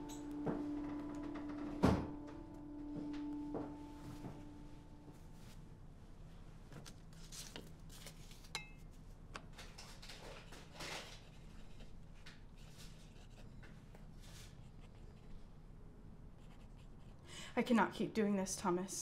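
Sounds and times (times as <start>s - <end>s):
soft scratching and rustling: 9.8s - 15.5s.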